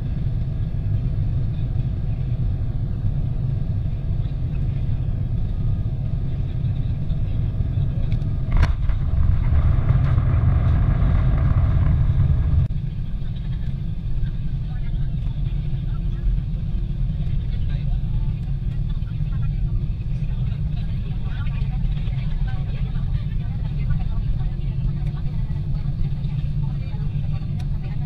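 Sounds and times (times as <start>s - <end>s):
airliner engine and airflow rumble: 0.0s - 28.0s
rushing rumble of landing roll: 8.0s - 12.8s.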